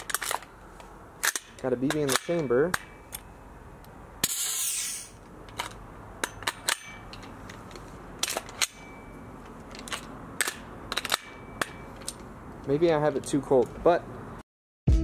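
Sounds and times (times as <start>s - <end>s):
short gas hiss: 4.4s - 5.2s.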